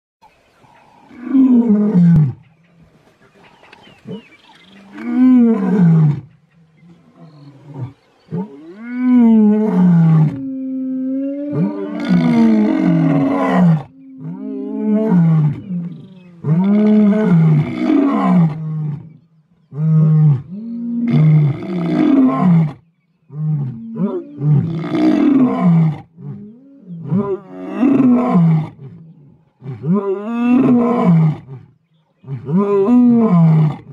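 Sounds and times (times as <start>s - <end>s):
lions roaring: 4.9s - 19.1s.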